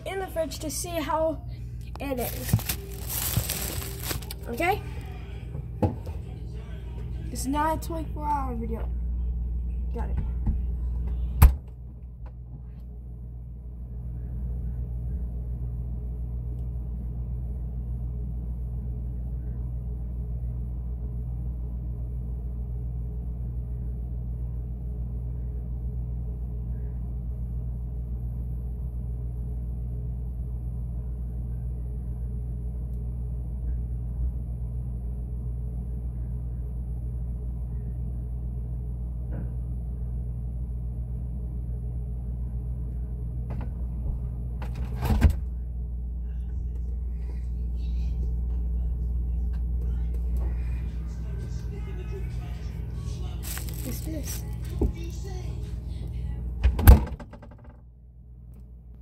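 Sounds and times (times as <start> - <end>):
refrigerator humming: 0.0 - 59.0
handling noise: 1.8 - 4.5, 53.4 - 55.1.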